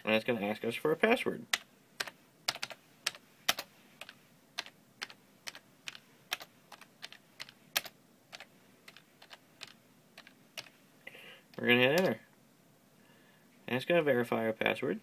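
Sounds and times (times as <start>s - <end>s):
keyboard keystrokes: 1.5s - 10.7s.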